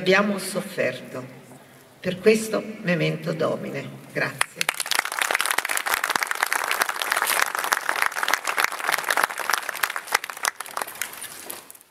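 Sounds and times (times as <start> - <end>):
audience applauding: 4.4 - 11.8.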